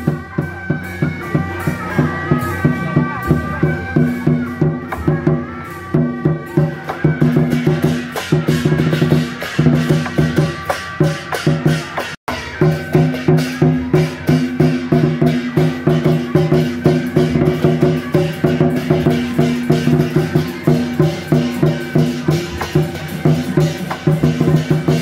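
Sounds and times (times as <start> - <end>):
drums beating fast rhythm: 0.0 - 25.0.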